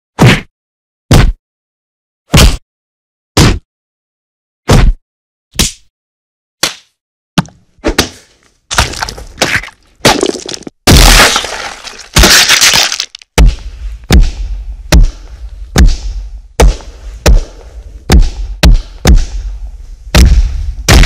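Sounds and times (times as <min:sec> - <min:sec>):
crashing shattering bursts: 0:10.0 - 0:13.2
sharp hits with deep thud: 0:13.4 - 0:21.0.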